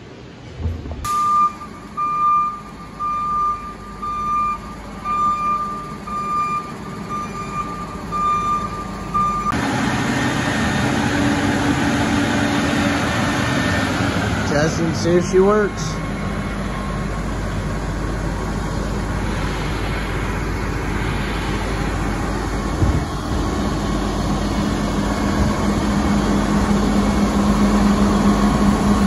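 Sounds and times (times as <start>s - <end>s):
engine running: 0.0s - 29.0s
backup alarm beeping: 1.0s - 9.6s.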